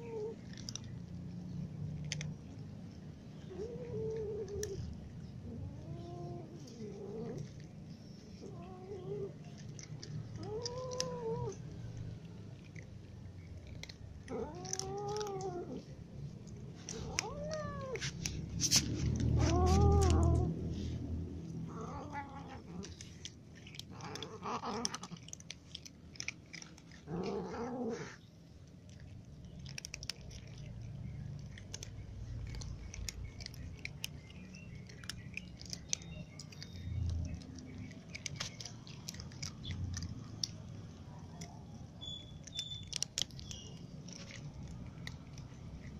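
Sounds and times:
cats meowing: 0.0 - 1.0, 3.4 - 28.2
crunching of dry kibble: 0.0 - 45.9.

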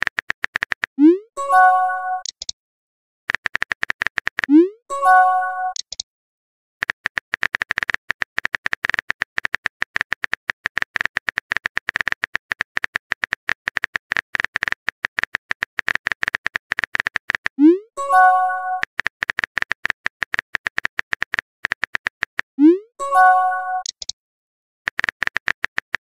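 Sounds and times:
phone keyboard clicks: 0.0 - 1.0, 3.3 - 4.5, 5.7 - 6.0, 6.8 - 17.6, 18.8 - 22.5, 23.8 - 24.2, 24.9 - 26.0.

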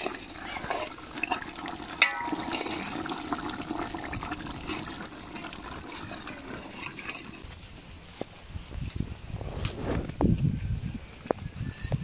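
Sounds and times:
curry bubbling in a pot: 0.0 - 7.6.

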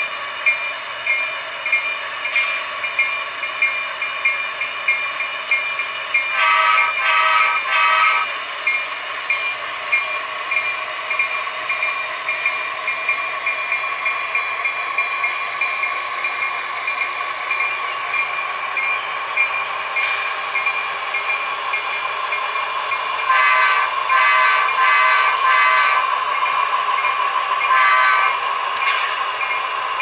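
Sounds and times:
locomotive engine drone: 0.0 - 30.0
ringing locomotive bell: 0.0 - 30.0
locomotive horn blasts: 6.4 - 8.3, 23.3 - 26.0, 27.7 - 28.4.

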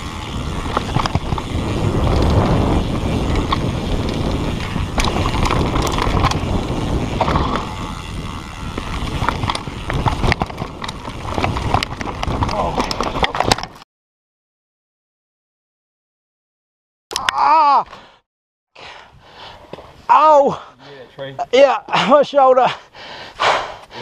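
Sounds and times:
wind on microphone: 0.0 - 13.4
bike rattles and clicks: 0.0 - 13.8
bike tyre noise on dirt: 0.0 - 13.8.

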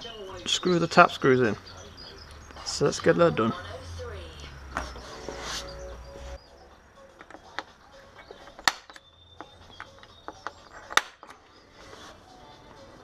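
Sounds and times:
faint background music: 0.0 - 13.0.

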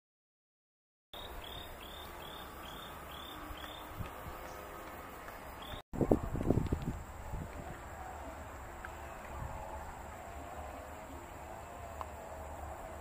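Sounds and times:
outdoor background: 1.1 - 13.0
insect chirping: 1.2 - 5.8.

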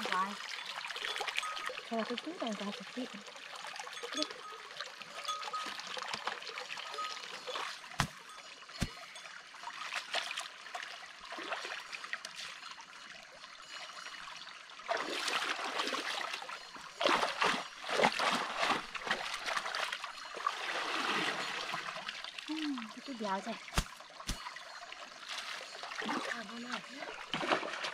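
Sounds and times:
stream trickling: 0.0 - 27.9
splashing in water: 14.9 - 24.6, 25.2 - 27.9.

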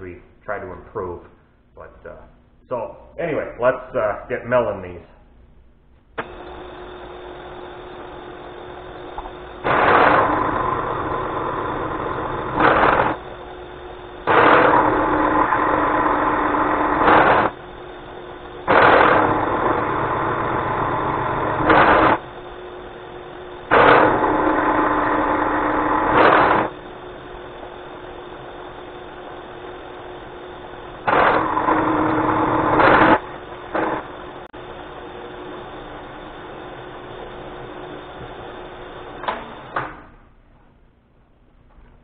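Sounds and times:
spindle motor hum: 5.8 - 40.2
milling machine cutting steel: 6.2 - 22.2, 23.6 - 27.1, 31.0 - 34.3.

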